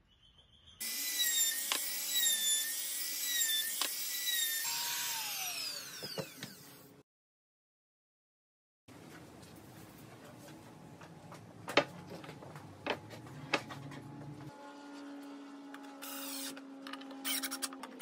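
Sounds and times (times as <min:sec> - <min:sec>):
router whining: 0:00.8 - 0:07.0, 0:13.7 - 0:18.0.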